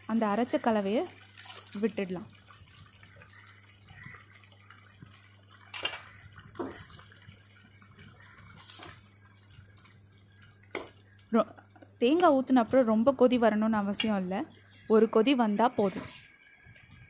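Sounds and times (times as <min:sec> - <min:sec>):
liquid splashing in a pot: 0:00.0 - 0:14.8
steel spoon stirring: 0:15.5 - 0:16.6.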